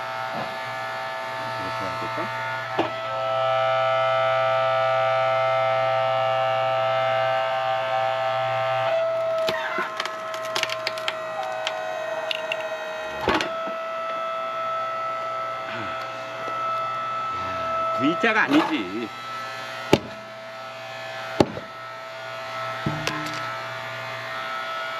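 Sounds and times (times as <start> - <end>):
log splitter motor whining: 0.0 - 24.9
log cracking and splintering: 9.2 - 12.7
loud knock: 22.9 - 23.3.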